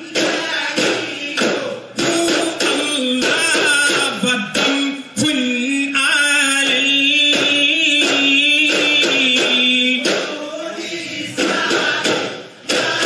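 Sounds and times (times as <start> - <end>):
voices singing: 0.0 - 13.0.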